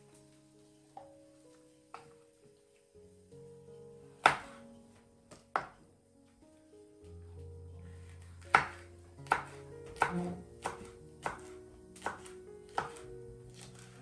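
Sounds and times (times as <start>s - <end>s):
soft background music: 0.0s - 14.0s
knife chopping on wooden board: 4.2s - 4.5s, 8.4s - 13.0s.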